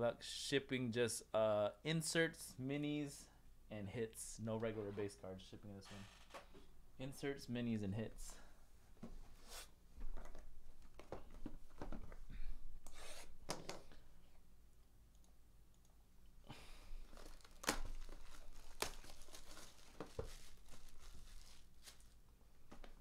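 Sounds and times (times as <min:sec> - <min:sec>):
shrink wrap tearing and crinkling: 0:17.0 - 0:22.2.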